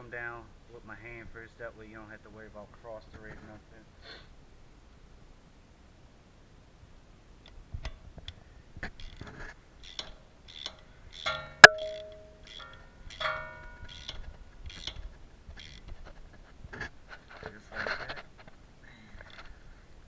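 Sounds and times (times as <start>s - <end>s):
metallic clicks of socket tool: 9.8s - 16.0s
sharp metal clang: 10.0s - 14.2s.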